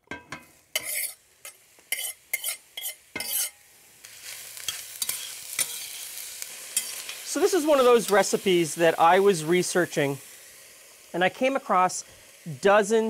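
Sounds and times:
metal spoon scraping pot: 0.1 - 3.6
vegetables sizzling in oil: 0.1 - 13.0.

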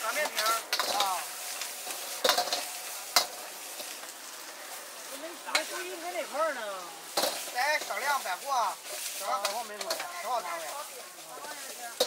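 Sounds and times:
metal ladle scraping wok: 0.0 - 5.9, 7.0 - 12.0
greens sizzling in wok: 0.0 - 12.0.

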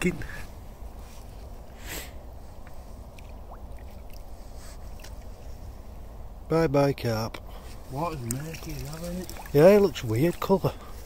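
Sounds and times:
water splashing: 3.0 - 4.3, 8.0 - 10.4.

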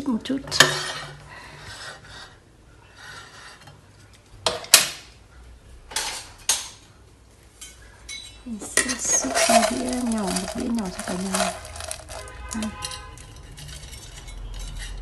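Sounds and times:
kitchenware clinking: 7.6 - 15.0.

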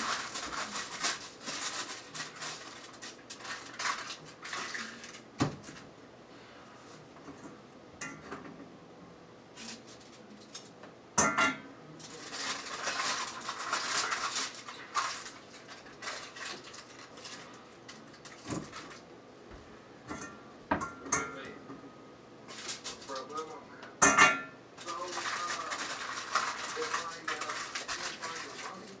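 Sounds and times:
dishes and utensils clattering: 7.2 - 8.6, 10.4 - 19.0, 20.1 - 21.8, 24.0 - 24.6.

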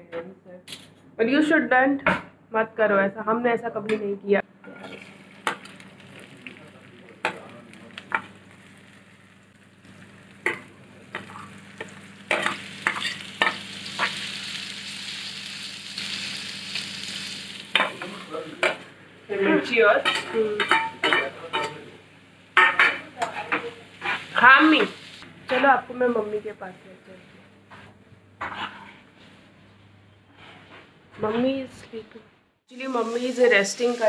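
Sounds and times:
onions sizzling in a pan: 4.7 - 27.3, 32.7 - 34.0.

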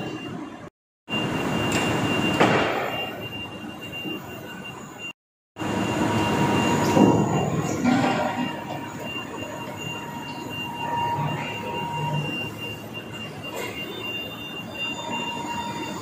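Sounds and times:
industrial machinery din: 5.6 - 12.7.

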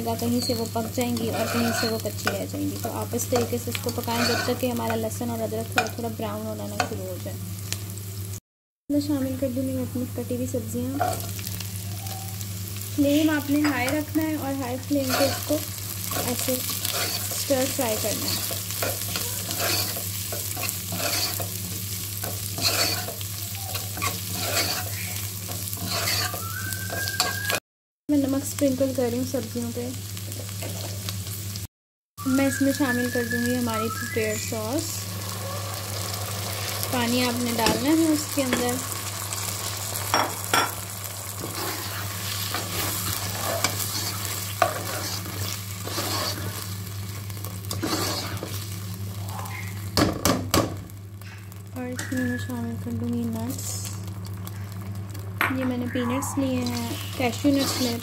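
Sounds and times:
vegetables sizzling in oil: 0.0 - 58.0
metal spatula scraping a pot: 0.4 - 2.4, 3.4 - 4.9, 15.0 - 21.6, 22.2 - 26.4, 41.4 - 46.7, 47.7 - 48.6, 56.6 - 58.0.

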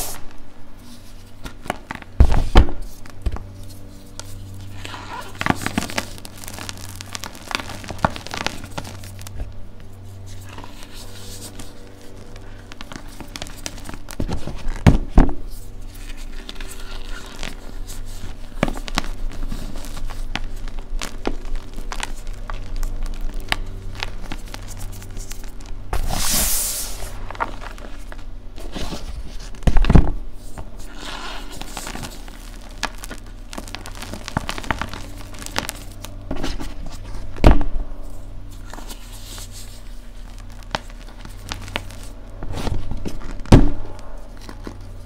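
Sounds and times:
hands crunching chalk: 2.8 - 14.9, 15.5 - 29.5, 30.5 - 37.0.

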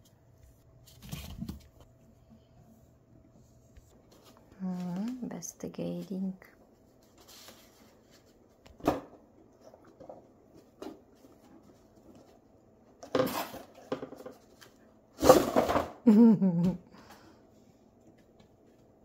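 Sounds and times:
cat rustling cardboard and paper: 0.1 - 2.1, 6.0 - 8.6.

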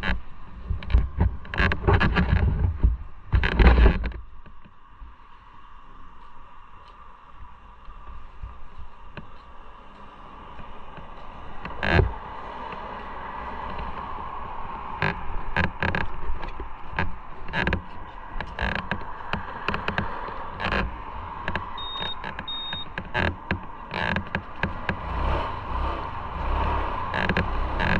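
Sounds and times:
sharp knocks and clicks: 0.0 - 4.8, 15.0 - 25.0, 27.1 - 27.9
motorcycle engine hum: 0.0 - 27.9.

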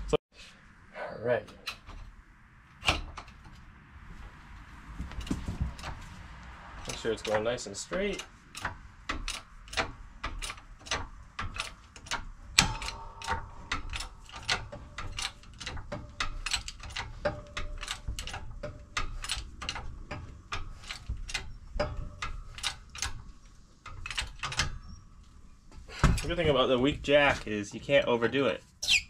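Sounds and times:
hand-pumped hydraulic press clicking: 8.1 - 25.0.

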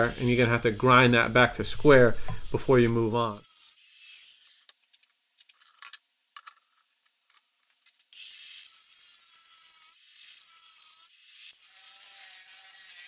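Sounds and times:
angle grinder cutting metal: 0.0 - 4.7, 8.2 - 13.0.

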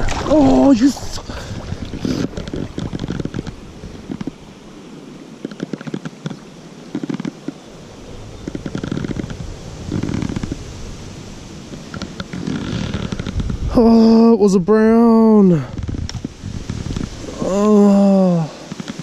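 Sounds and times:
river water sloshing and splashing: 0.0 - 13.7.

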